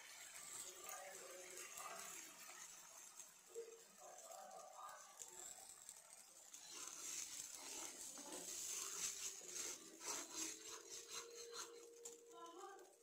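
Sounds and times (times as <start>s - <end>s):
sauce simmering hiss: 0.0s - 13.0s
metal spoon scraping pan: 6.6s - 12.2s.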